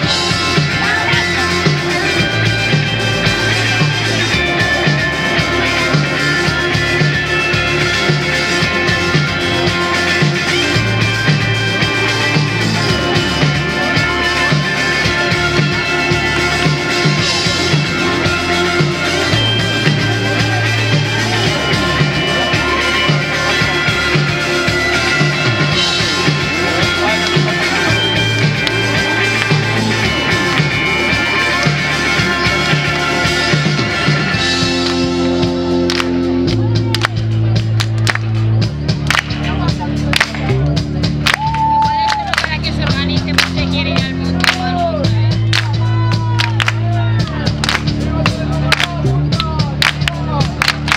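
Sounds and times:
live rock band playing: 0:00.0 - 0:50.9
steady low beat: 0:00.0 - 0:50.9.

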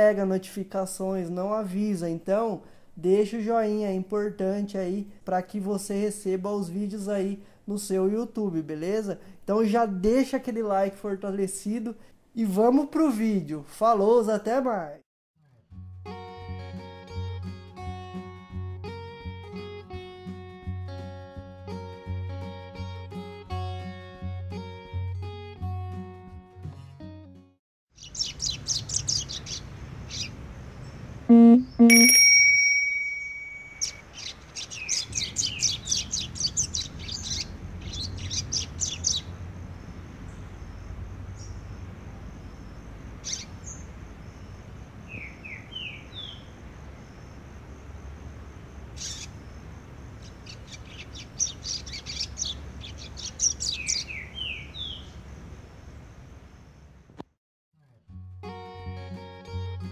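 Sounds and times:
bird twittering song: 0:28.0 - 0:32.1, 0:32.8 - 0:47.4, 0:48.9 - 0:55.3
guitar music: 0:31.3 - 0:33.1
loud ringing tone: 0:31.3 - 0:33.8.

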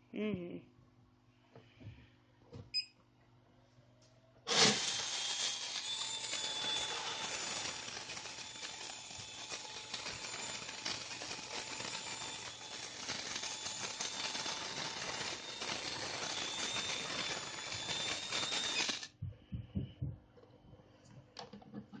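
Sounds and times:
electric motor gearbox rattling: 0:04.5 - 0:19.1.

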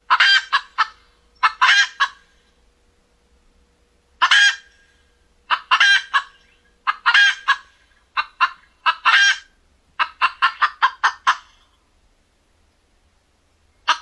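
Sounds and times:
gamebird clucking calls: 0:00.0 - 0:02.5, 0:04.2 - 0:11.8.

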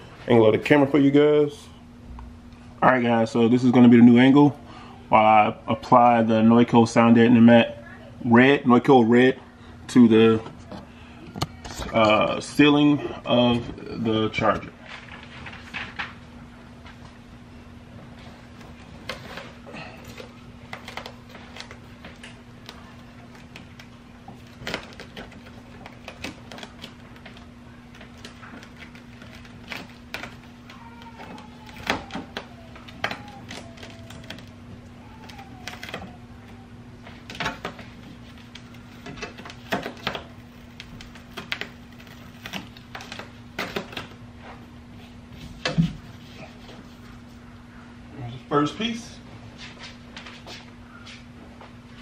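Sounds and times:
foam liner rustling and crinkling: 0:18.1 - 0:47.4.

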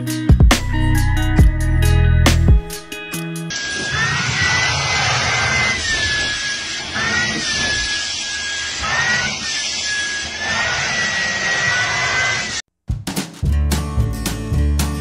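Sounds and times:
vacuum cleaner running: 0:03.5 - 0:12.6.

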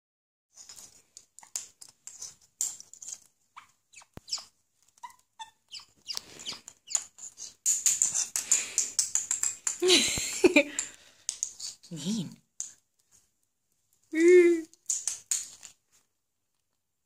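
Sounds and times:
parrot squeaky chirps: 0:03.6 - 0:08.2.

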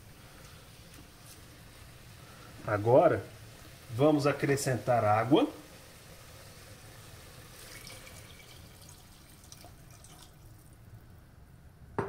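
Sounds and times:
water pouring and splashing: 0:03.5 - 0:10.8.

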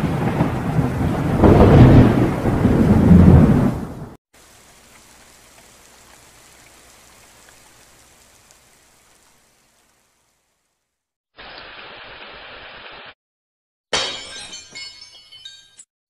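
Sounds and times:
duller rain sound: 0:00.0 - 0:12.7
steady rain hiss: 0:03.4 - 0:13.1.

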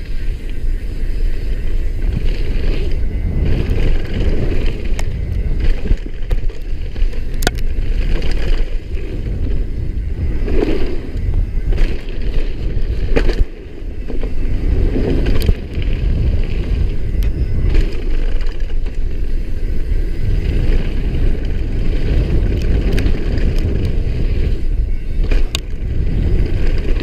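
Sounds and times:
bike clicks and knocks: 0:00.0 - 0:27.0
bike tyres rumbling on gravel: 0:00.0 - 0:27.0
wind rushing on microphone: 0:00.0 - 0:27.0.

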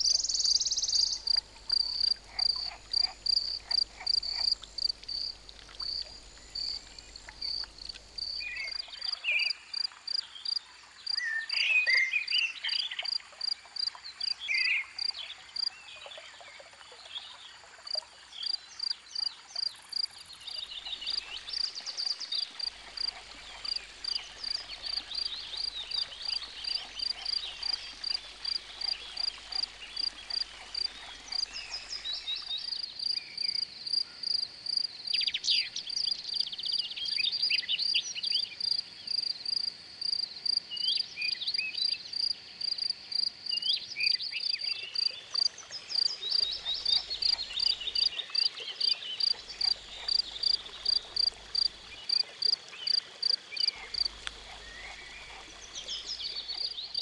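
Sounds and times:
high pulsing frog call: 0:00.0 - 0:09.9, 0:46.3 - 0:57.0
frogs croaking: 0:00.0 - 0:15.8, 0:17.8 - 0:57.0
insect chirps: 0:00.0 - 0:15.8, 0:17.7 - 0:57.0.

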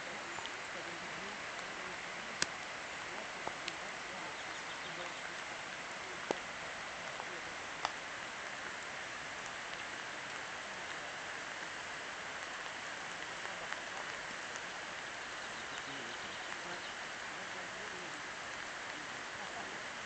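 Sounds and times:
steady outdoor background hiss: 0:00.0 - 0:20.0
faint ticks: 0:01.5 - 0:02.7.

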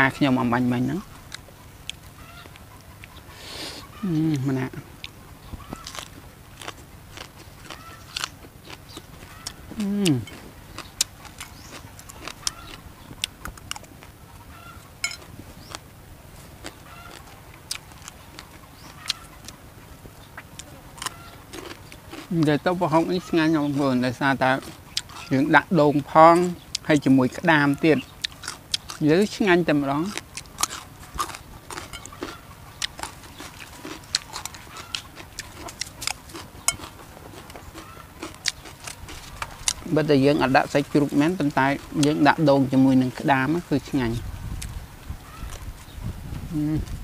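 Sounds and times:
hens clucking: 0:00.0 - 0:15.8, 0:16.6 - 0:44.2
chewing: 0:00.3 - 0:19.6, 0:20.2 - 0:42.5, 0:43.1 - 0:47.0.

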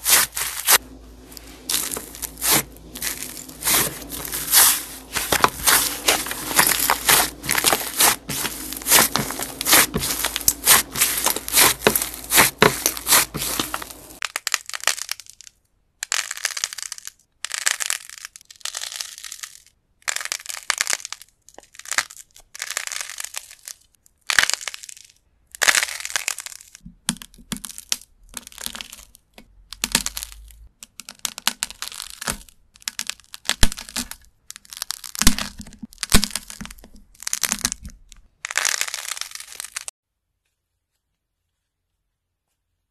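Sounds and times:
hands kneading sticky putty: 0:00.0 - 0:14.2
crumbly clay crunching: 0:00.0 - 0:39.9.

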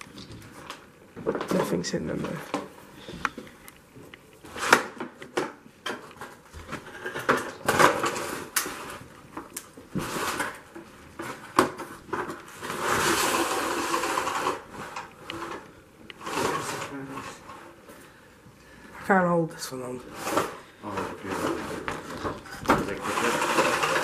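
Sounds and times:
scraping rustle: 0:09.9 - 0:15.6, 0:16.2 - 0:17.8, 0:20.0 - 0:24.0.

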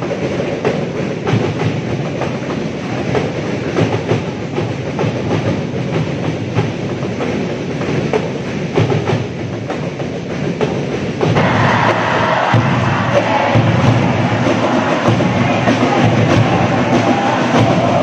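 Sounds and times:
sharp regular drum hits: 0:00.0 - 0:18.0
crowd singing a chant: 0:11.4 - 0:18.0.

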